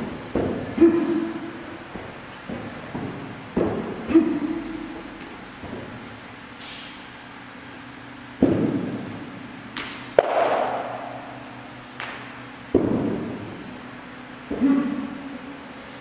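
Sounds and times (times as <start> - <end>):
foot stamps and hand strikes: 0.0 - 4.4.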